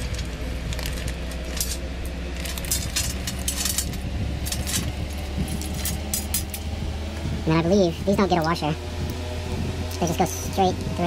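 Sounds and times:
steady low hum: 0.0 - 11.0
metal bolts clinking: 2.4 - 4.9, 5.5 - 6.6.

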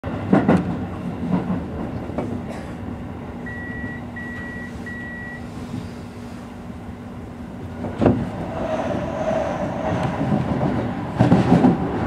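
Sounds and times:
train knocks: 0.1 - 4.5, 7.8 - 9.1, 9.7 - 12.0
electric train humming: 0.6 - 12.0.

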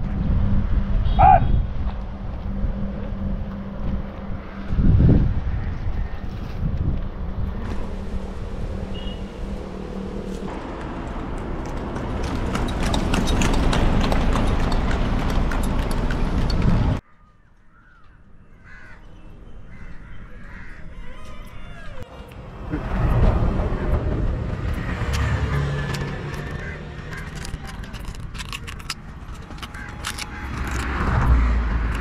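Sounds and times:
wind and road noise: 0.0 - 32.0
bird calls: 8.9 - 9.4.

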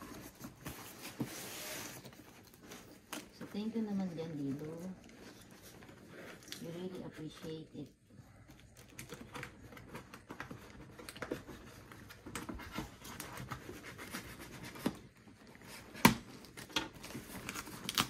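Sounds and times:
cardboard scratching and rustling: 0.0 - 7.5, 8.6 - 18.0.

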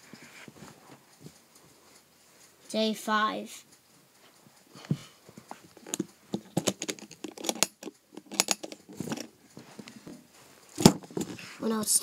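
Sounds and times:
toys rattling against toolbox: 5.7 - 9.4
metal latch clicking: 5.9 - 9.3.

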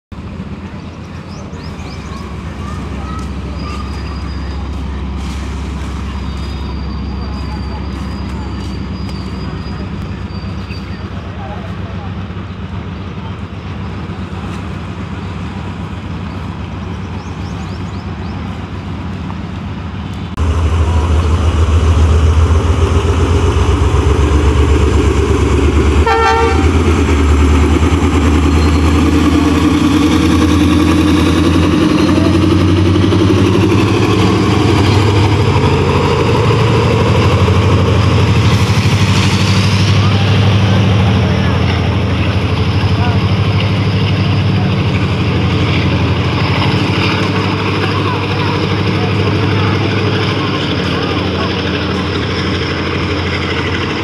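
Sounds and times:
diesel locomotive engine drone: 0.1 - 54.0
locomotive horn toot: 26.0 - 26.8.

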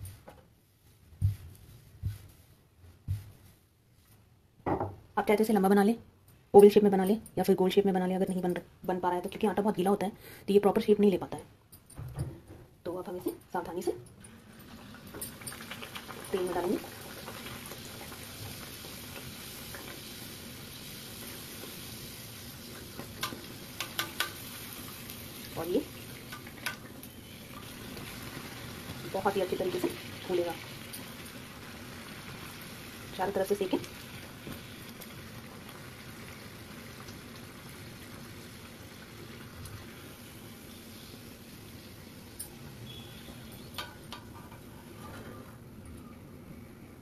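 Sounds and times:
dough sizzling in hot oil: 14.3 - 45.0.

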